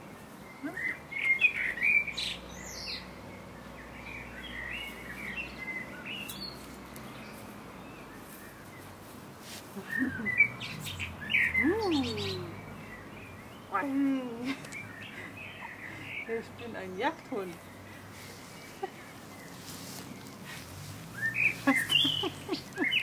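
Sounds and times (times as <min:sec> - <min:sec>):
songbirds chirping: 0:00.0 - 0:23.0
rustling: 0:06.2 - 0:11.0, 0:17.1 - 0:23.0.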